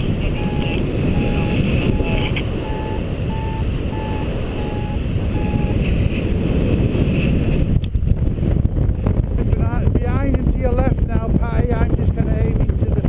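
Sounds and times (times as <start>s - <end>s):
variometer short beeps: 0.0s - 5.8s
wind buffeting microphone: 0.0s - 13.0s.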